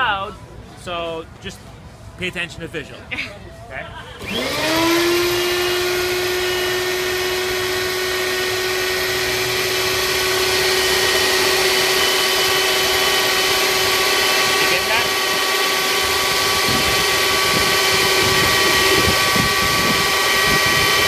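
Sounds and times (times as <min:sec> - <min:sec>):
belt sander motor whine: 0:04.2 - 0:21.0.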